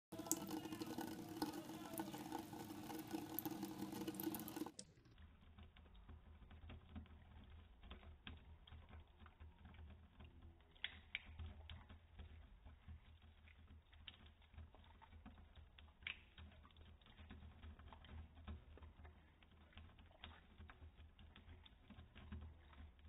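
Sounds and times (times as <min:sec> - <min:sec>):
faucet running: 0:00.1 - 0:04.8
cat lapping water: 0:00.1 - 0:23.0.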